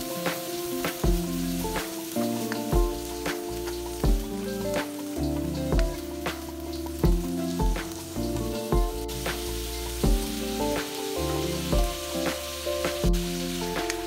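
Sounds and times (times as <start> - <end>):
sprouts sizzling in a wok: 0.0 - 14.0.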